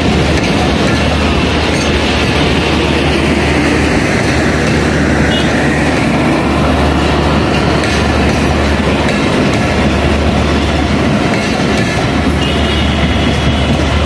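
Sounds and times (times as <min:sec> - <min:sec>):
train wheels rumbling on rails: 0:00.0 - 0:14.0.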